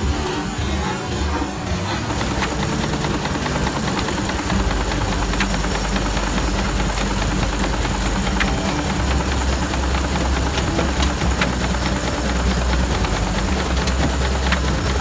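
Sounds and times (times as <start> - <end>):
steam engine running: 0.0 - 15.0.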